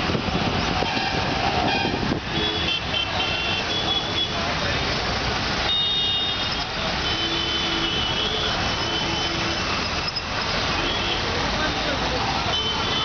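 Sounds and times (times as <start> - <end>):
roadside traffic: 0.0 - 13.0.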